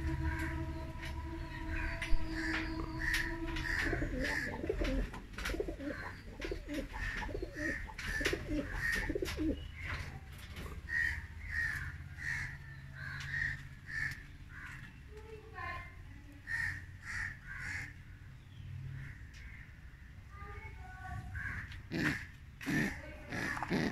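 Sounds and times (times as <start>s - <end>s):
pigeons cooing: 0.0s - 12.6s, 21.4s - 23.9s.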